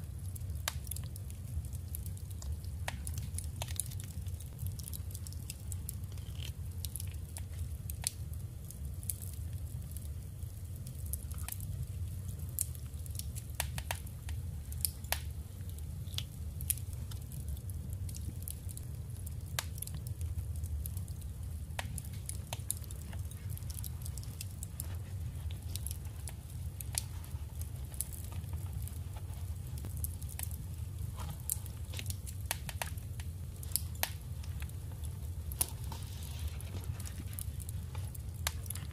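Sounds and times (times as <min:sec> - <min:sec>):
steady low hum: 0:00.0 - 0:38.9
paper crinkling and tapping: 0:34.0 - 0:38.9.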